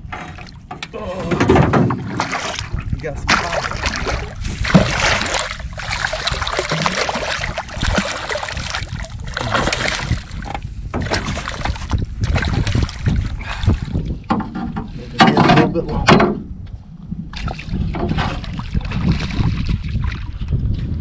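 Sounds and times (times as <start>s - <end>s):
fish splashing at water surface: 2.0s - 13.9s.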